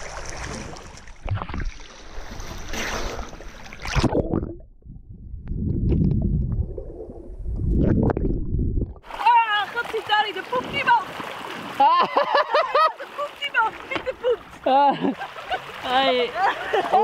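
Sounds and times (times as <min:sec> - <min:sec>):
water splashing and lapping: 0:00.0 - 0:04.8, 0:05.8 - 0:17.0
muffled underwater rumble: 0:04.0 - 0:09.1.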